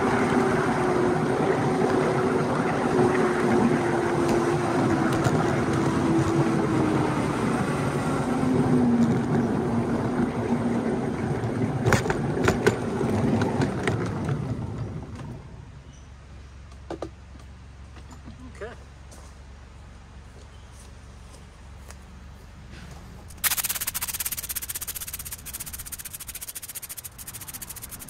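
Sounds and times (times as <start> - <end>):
sharp clacks: 23.3 - 28.0.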